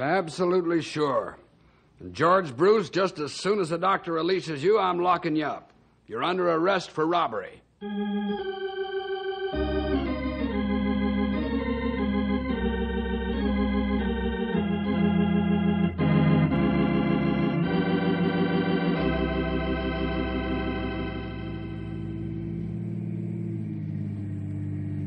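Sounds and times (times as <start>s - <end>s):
organ chords over deep bass: 7.8s - 25.0s.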